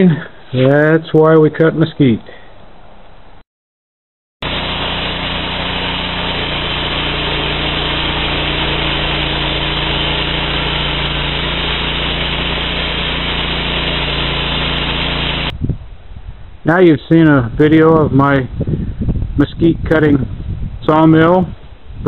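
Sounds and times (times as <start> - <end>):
band sawmill sawing through log: 4.4 - 15.5.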